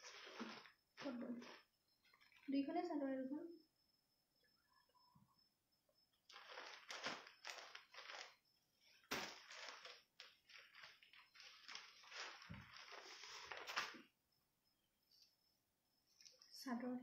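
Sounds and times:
plastic wrapping crinkling: 0.0 - 2.6, 6.3 - 14.0
cloth rustling: 0.0 - 2.7, 6.3 - 14.0.

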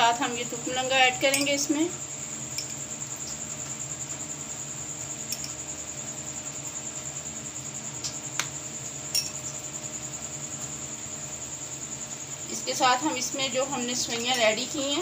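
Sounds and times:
spoon clinking against glass mug: 9.1 - 9.4.

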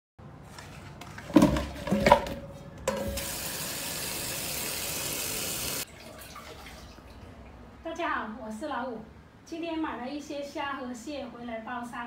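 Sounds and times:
steel bowl clanking on sink: 1.4 - 3.4
tap water running into basin: 2.9 - 7.4.

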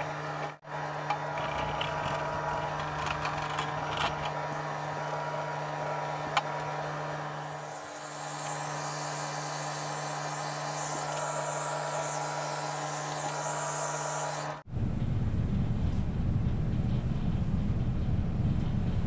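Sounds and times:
orbital sander running: 0.2 - 14.6
low rumbling noise: 14.7 - 19.0.

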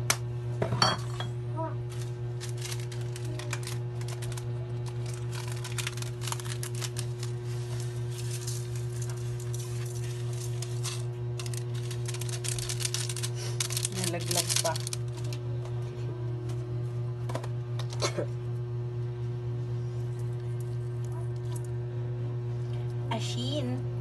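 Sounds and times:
steady low hum: 0.0 - 24.0
seasoning sprinkling clicks: 2.4 - 15.4.

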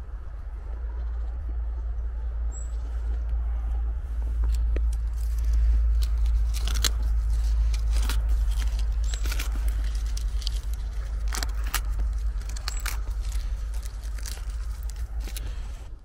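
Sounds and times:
low microphone rumble: 0.0 - 16.0
twigs crackling and snapping: 4.1 - 16.0.

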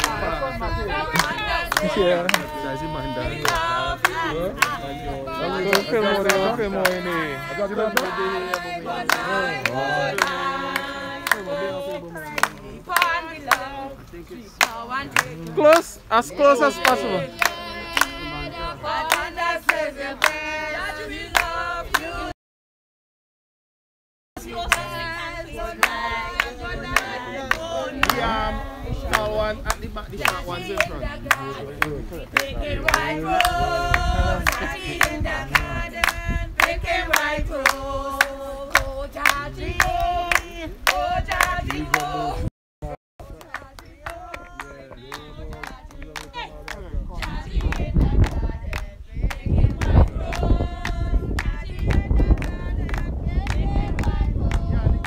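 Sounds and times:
group of people singing: 0.0 - 22.4, 24.4 - 42.5, 43.2 - 55.0
hand claps: 1.1 - 2.6, 3.4 - 4.8, 5.6 - 7.2, 7.9 - 11.6, 12.2 - 13.7, 14.6 - 15.8, 16.8 - 18.2, 19.0 - 20.4, 25.8 - 28.3, 29.1 - 42.1, 43.2 - 54.6.

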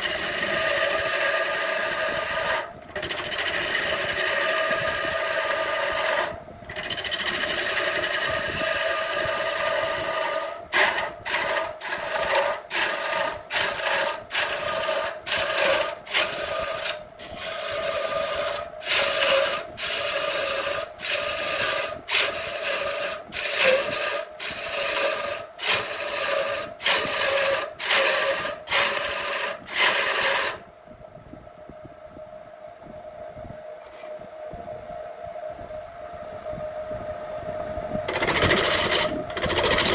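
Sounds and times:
gouge cutting wood on lathe: 0.0 - 30.6, 38.1 - 39.9
lathe humming: 0.0 - 30.6, 38.1 - 39.9.

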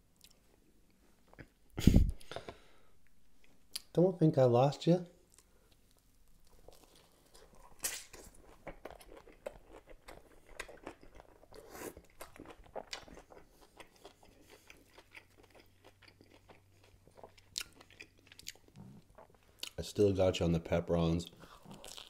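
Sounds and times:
wet chewing with crunches: 5.3 - 19.8, 21.4 - 22.0
bite into a pepper: 7.4 - 11.0.

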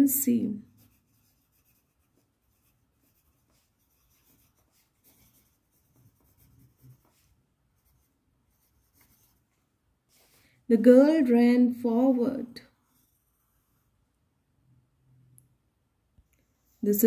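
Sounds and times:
pencil scratching on paper: 0.1 - 10.4, 12.6 - 14.0.

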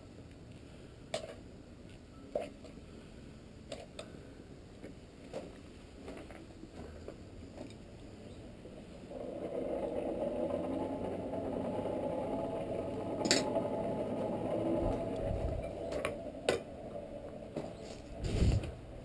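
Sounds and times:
forge air blower running: 9.0 - 19.0.

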